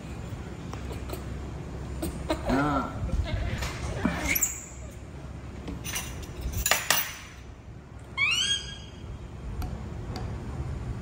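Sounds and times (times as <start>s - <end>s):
baby monkey high-pitched call: 8.1s - 9.1s.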